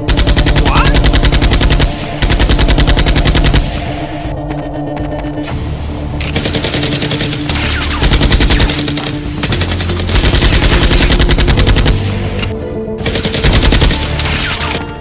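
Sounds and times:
automatic gunfire bursts: 0:00.0 - 0:03.7, 0:06.3 - 0:12.1, 0:13.0 - 0:14.8
background music: 0:00.0 - 0:15.0.

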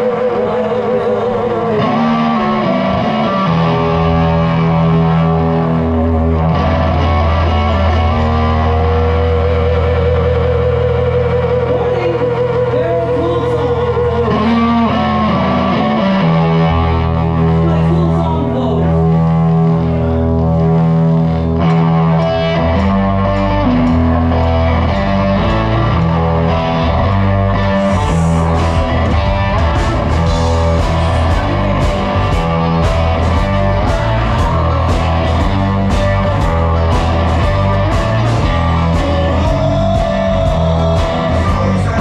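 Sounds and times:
blues-rock band playing: 0:00.0 - 0:42.0
electric guitar leads: 0:00.0 - 0:42.0.

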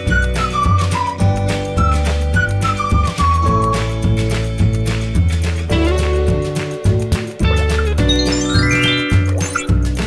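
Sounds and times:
background music with beat: 0:00.0 - 0:10.0.

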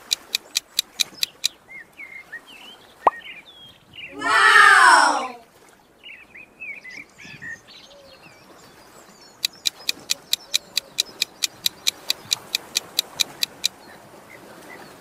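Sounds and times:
chirping sound effects: 0:00.0 - 0:01.5, 0:09.4 - 0:13.7
countdown timer ticks: 0:00.0 - 0:01.5, 0:09.4 - 0:13.7.

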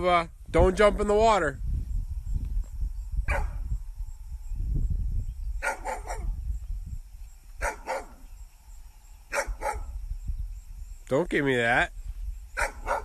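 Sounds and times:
dog barking: 0:03.3 - 0:03.6, 0:05.6 - 0:06.4, 0:07.6 - 0:08.2, 0:09.3 - 0:10.0, 0:12.6 - 0:13.0.

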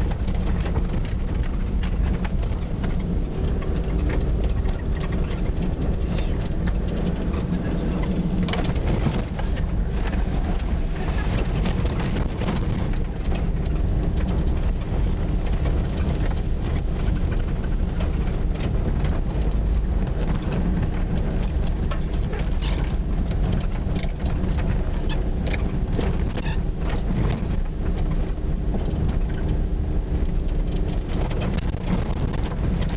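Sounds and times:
engine and tyre rumble: 0:00.0 - 0:32.9
knocks and rattles: 0:00.0 - 0:32.9.

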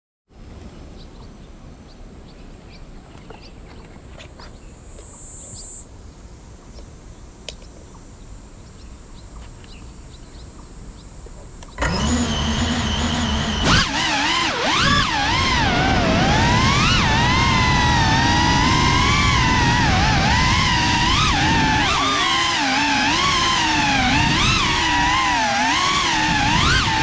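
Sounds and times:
drone motors whining: 0:11.2 - 0:27.0.

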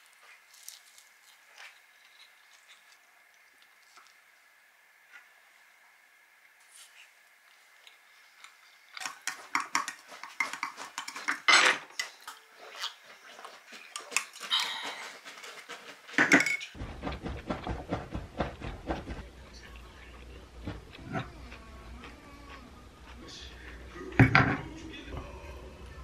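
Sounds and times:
tableware clattering: 0:16.2 - 0:16.8, 0:24.2 - 0:24.6.

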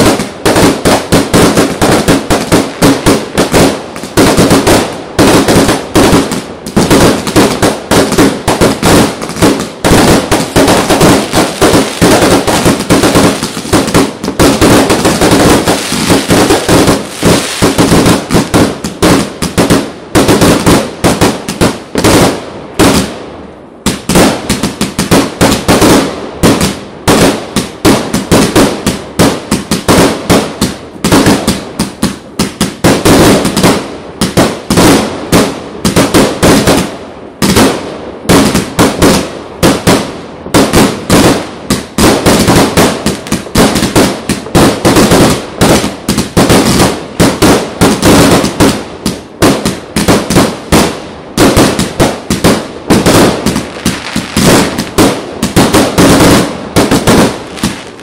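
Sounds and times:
fireworks bangs: 0:00.0 - 0:58.0.

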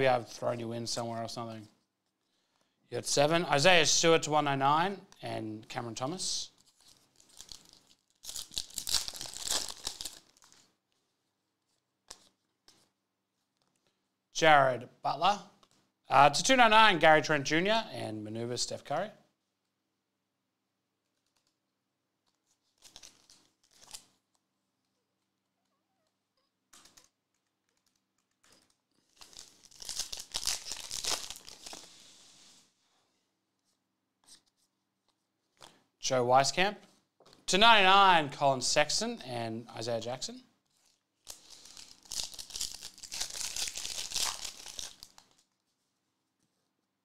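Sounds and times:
foil wrapper tearing and crinkling: 0:06.9 - 0:10.7, 0:22.7 - 0:24.2, 0:28.5 - 0:32.0, 0:41.2 - 0:45.5.

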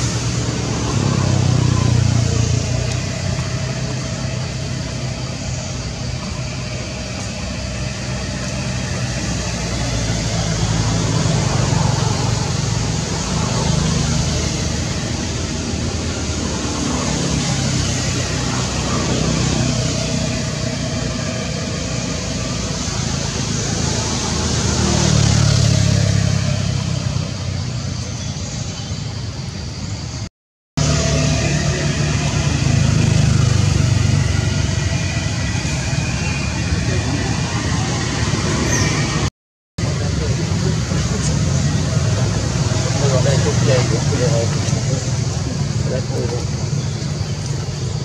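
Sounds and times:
road traffic rumble: 0:00.0 - 0:48.0.

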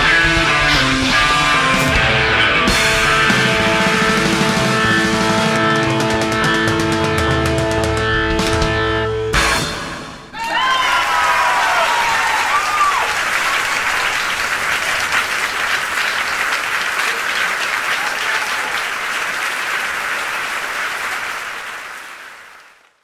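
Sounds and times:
audience applauding and cheering: 0:10.3 - 0:23.0.

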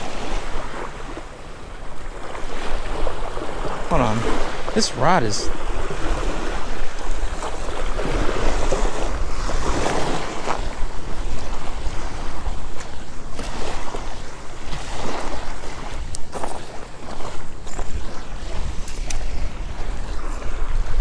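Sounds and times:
small waves washing onto beach: 0:00.0 - 0:21.0
wind buffeting microphone: 0:05.5 - 0:21.0.

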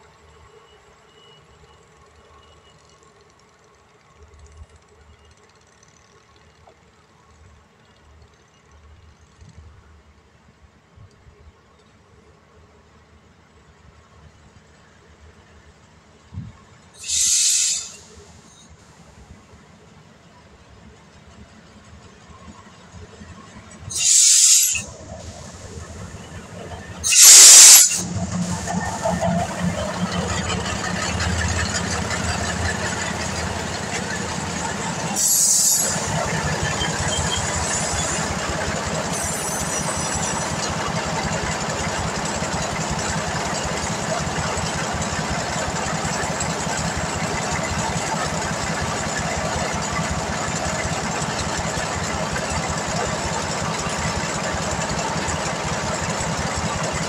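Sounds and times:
compressed air hiss: 0:17.0 - 0:18.2, 0:23.9 - 0:25.4, 0:27.0 - 0:28.8, 0:35.2 - 0:36.1.

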